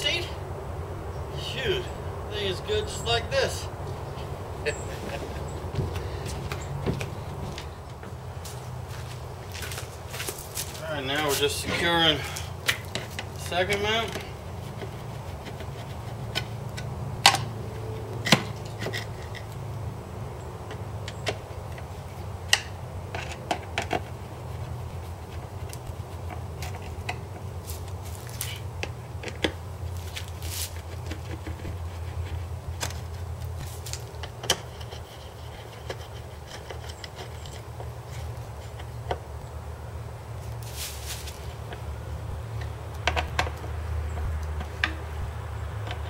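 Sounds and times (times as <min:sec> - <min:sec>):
low hum: 0:00.0 - 0:10.9, 0:24.1 - 0:46.0.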